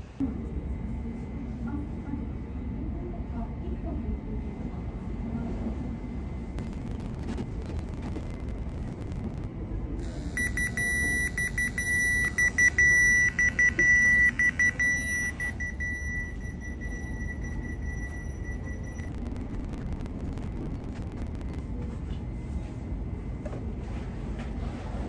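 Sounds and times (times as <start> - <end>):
pager beeping: 10.4 - 19.2.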